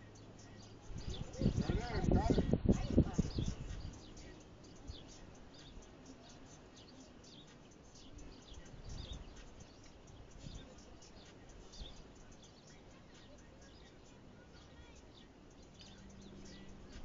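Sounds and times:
faint bird chirps: 0:00.0 - 0:17.0
low outdoor rumble: 0:00.0 - 0:17.0.

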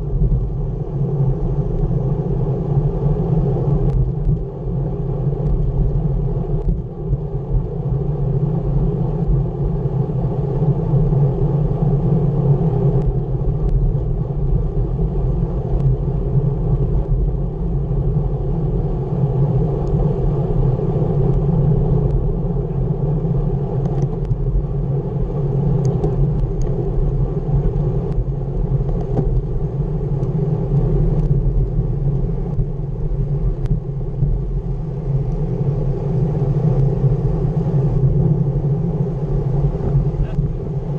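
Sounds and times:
bike tyres rolling on asphalt: 0:00.0 - 0:40.9
wind rumble on microphone: 0:00.0 - 0:40.9.

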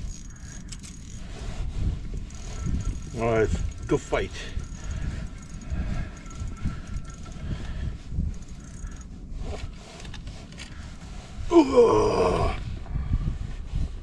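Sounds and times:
fishing reel clicking: 0:00.0 - 0:01.4, 0:02.0 - 0:10.7
wind rumble on microphone: 0:00.0 - 0:14.0
person grunting: 0:11.5 - 0:12.6.

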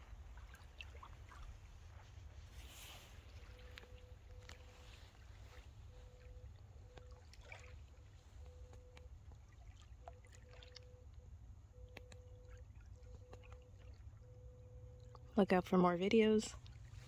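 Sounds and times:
faint hum: 0:00.0 - 0:17.0
faint low outdoor rumble: 0:00.0 - 0:17.0
small ticks: 0:11.9 - 0:13.7.

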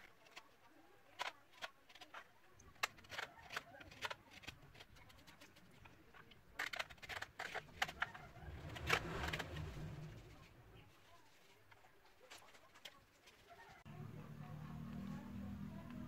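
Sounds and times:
low rumble: 0:08.2 - 0:10.9.

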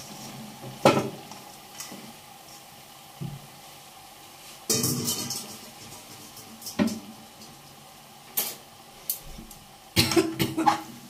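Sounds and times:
metal kitchen utensils clattering: 0:04.7 - 0:07.0.

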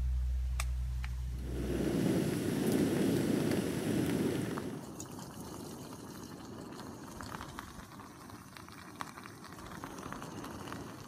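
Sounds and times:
gas stove rush: 0:01.4 - 0:04.9
food bubbling in a pot: 0:01.4 - 0:11.0.

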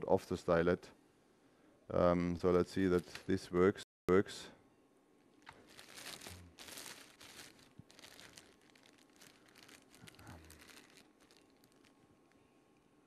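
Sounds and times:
faint steady hum: 0:00.0 - 0:13.0
faint rustling and crackling: 0:05.4 - 0:12.6.

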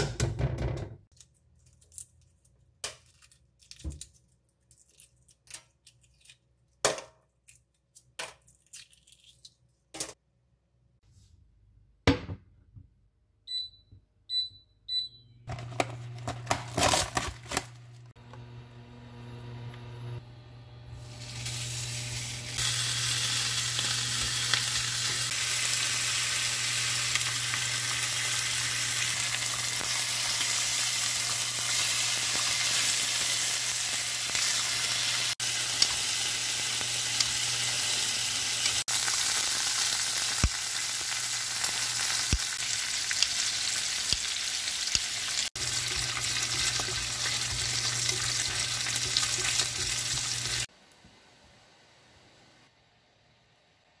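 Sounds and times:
meat sizzling in a frying pan: 0:21.2 - 0:50.7.

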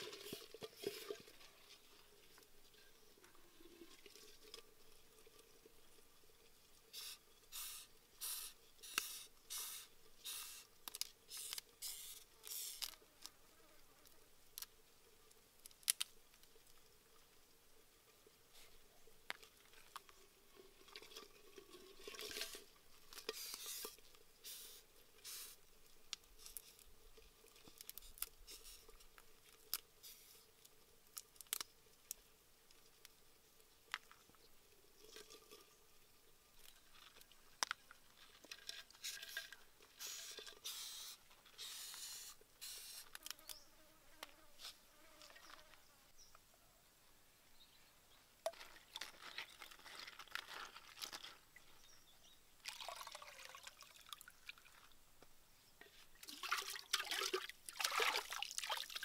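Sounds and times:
insect shells clicking and cracking: 0:15.6 - 0:16.5, 0:31.1 - 0:32.2.

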